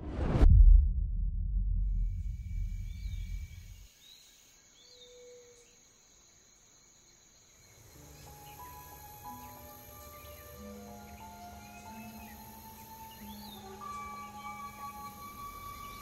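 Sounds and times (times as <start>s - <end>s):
deep low rumble: 0.0s - 3.9s
high insect hum: 2.2s - 16.0s
soft bird chirps: 2.5s - 5.9s.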